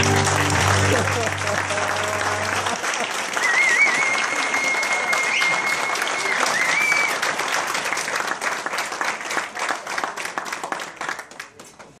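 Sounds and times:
audience applauding: 0.0 - 12.0
high whistle: 3.4 - 7.2.

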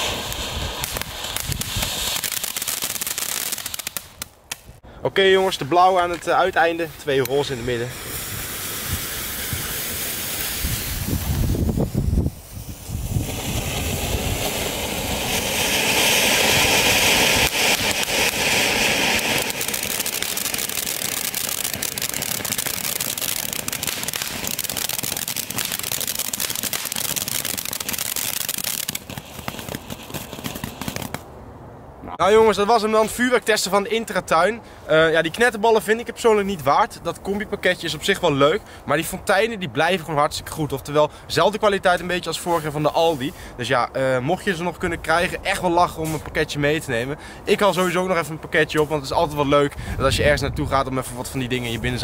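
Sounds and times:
firework fountains hissing: 0.0 - 4.2, 6.8 - 31.2
fine crackling: 13.2 - 31.2.

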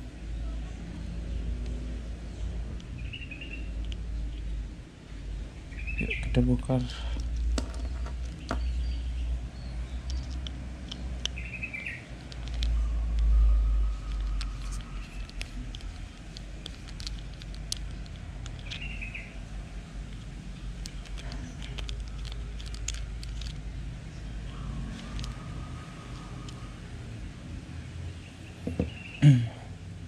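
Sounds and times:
bird chirping: 0.3 - 4.6, 5.5 - 6.4, 7.8 - 16.0, 18.0 - 19.5, 28.0 - 29.3.

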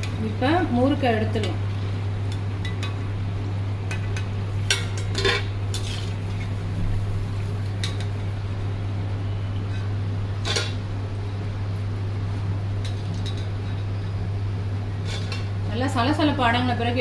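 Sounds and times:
frying sizzle: 0.0 - 17.0
steady low hum: 0.0 - 17.0.

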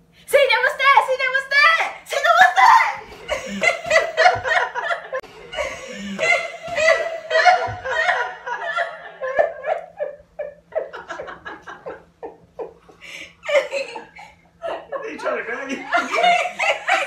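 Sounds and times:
person laughing hard: 3.0 - 15.0, 15.8 - 17.0.

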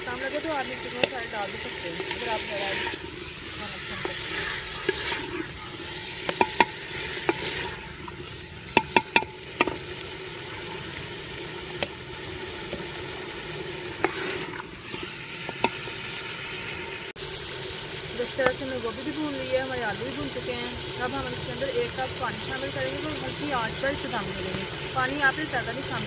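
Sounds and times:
vegetables sizzling in oil: 0.0 - 26.0
spoon knocking against pot: 6.3 - 7.4, 8.8 - 9.8.

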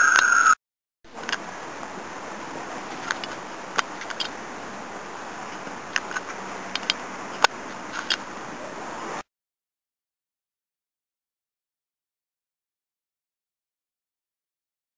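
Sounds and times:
outdoor background hiss: 1.1 - 9.3.

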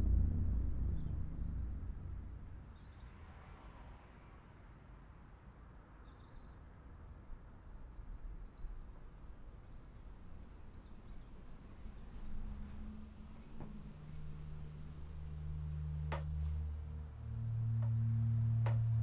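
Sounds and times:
low rumble: 0.0 - 3.0, 11.1 - 19.0.

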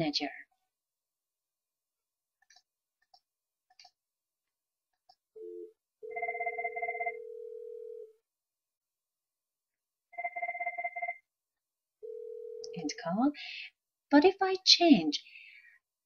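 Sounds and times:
steady ringback tone: 5.4 - 8.0
fast warbling phone ring: 5.4 - 8.1.

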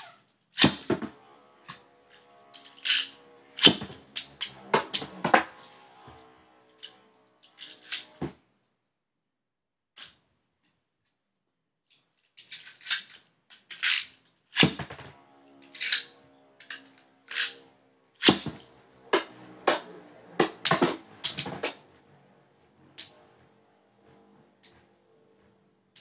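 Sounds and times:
spinning tops clashing: 19.2 - 21.8.

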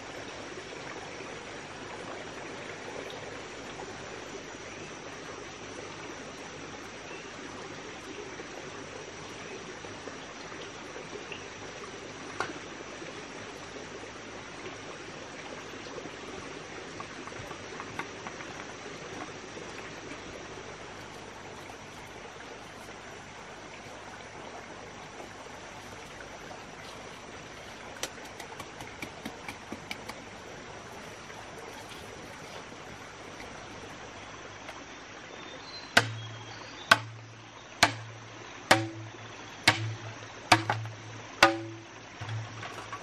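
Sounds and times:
running water: 0.0 - 43.0
sharp knocks: 36.0 - 36.3, 36.9 - 37.2, 37.8 - 42.9.

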